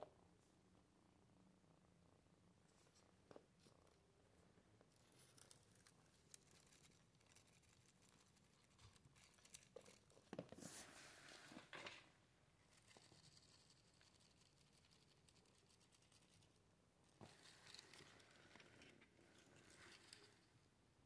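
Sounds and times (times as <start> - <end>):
paper ball crinkling: 4.9 - 12.0.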